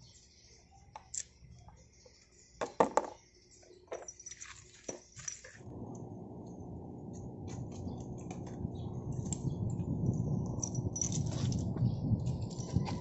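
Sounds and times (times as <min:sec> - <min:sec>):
screwdriver clinking on metal screws: 0:03.7 - 0:05.6, 0:10.6 - 0:13.0
low rushing noise: 0:05.6 - 0:10.9.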